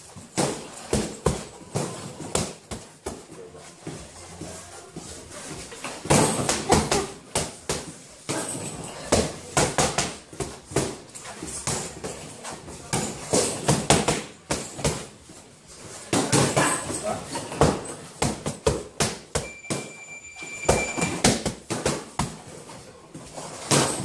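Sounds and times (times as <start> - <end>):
boxing gloves smacking: 0.2 - 3.3, 12.9 - 15.2, 21.0 - 22.4.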